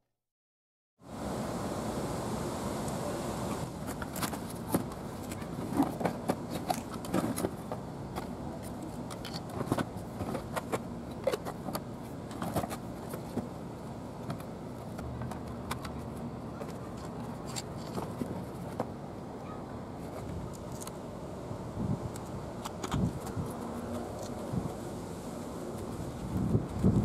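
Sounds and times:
steady background hiss: 0:01.0 - 0:27.0
cardboard rustling and scraping: 0:03.7 - 0:13.6, 0:14.2 - 0:19.0, 0:20.0 - 0:20.9.

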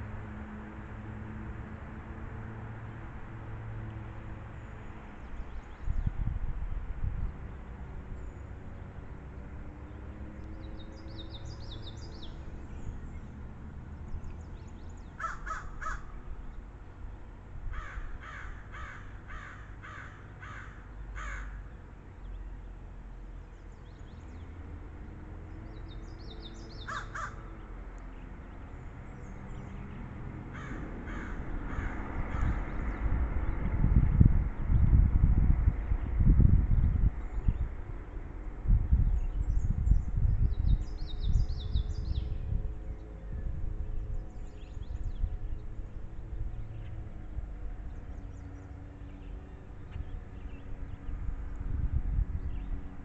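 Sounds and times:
low wind rumble: 0:00.0 - 0:53.0
small birds chirping: 0:08.2 - 0:16.8, 0:25.4 - 0:33.8, 0:38.9 - 0:53.0.

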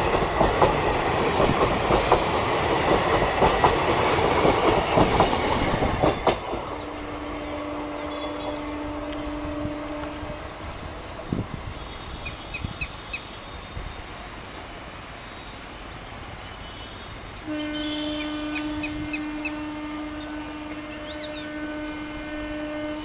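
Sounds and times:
train rumble: 0:00.0 - 0:23.0
birds chirping: 0:06.7 - 0:13.6, 0:17.8 - 0:23.0
locomotive horn: 0:06.8 - 0:12.7, 0:16.7 - 0:23.0.

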